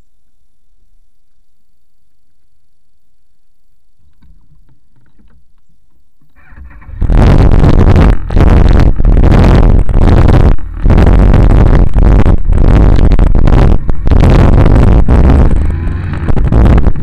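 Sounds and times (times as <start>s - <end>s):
faint low rumble: 0.0s - 17.0s
wind blasting microphone: 6.5s - 17.0s.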